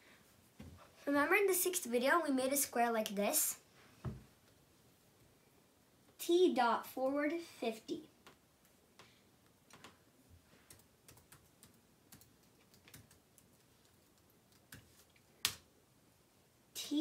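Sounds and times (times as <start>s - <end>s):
keyboard typing: 10.7s - 15.0s.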